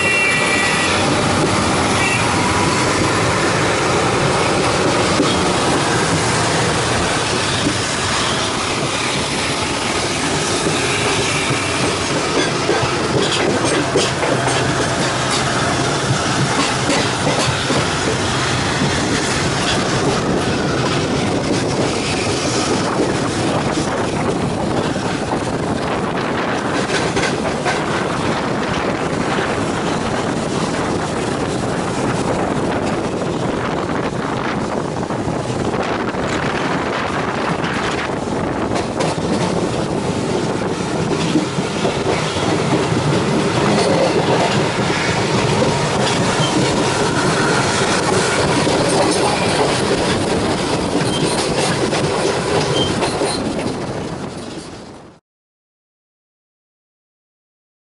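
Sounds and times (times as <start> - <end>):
train wheel clatter: 0.0 - 55.0
train rumble: 0.0 - 55.2.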